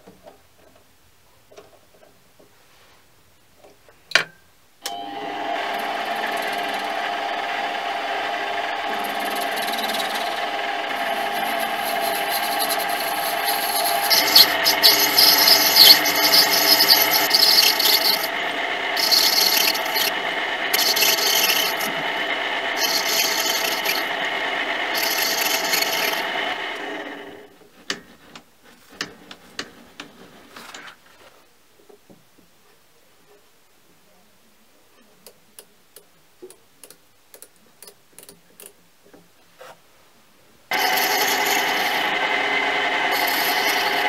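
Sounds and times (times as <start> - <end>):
lathe motor whine: 4.9 - 27.5, 40.7 - 44.0
cutting tool scraping brass: 8.8 - 24.3, 24.9 - 26.8, 40.7 - 44.0.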